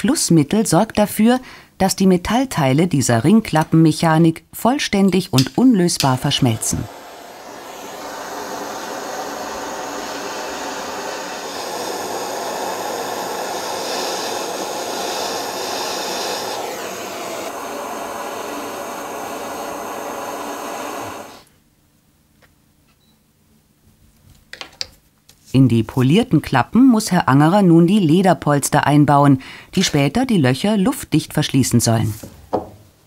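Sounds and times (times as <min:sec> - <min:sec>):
workshop tool hissing: 0:05.9 - 0:21.5.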